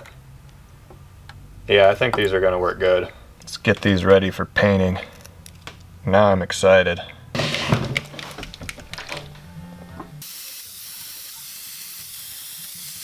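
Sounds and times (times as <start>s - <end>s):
airbrush hissing: 10.2s - 13.0s.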